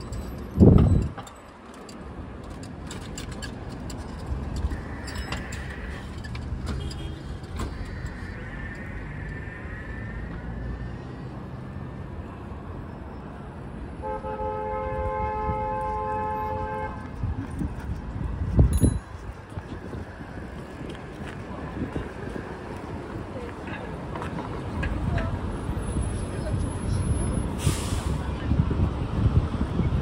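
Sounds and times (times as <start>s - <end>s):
road traffic rumbling: 0.0s - 30.0s
vehicle horn honking: 6.8s - 7.4s, 14.0s - 17.0s.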